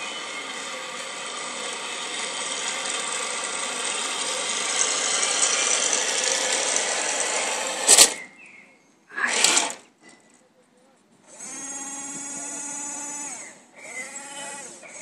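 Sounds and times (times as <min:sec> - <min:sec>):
toy tank motors whining: 0:00.0 - 0:08.3, 0:09.1 - 0:09.9, 0:11.3 - 0:15.0
short loud burst: 0:07.8 - 0:08.3.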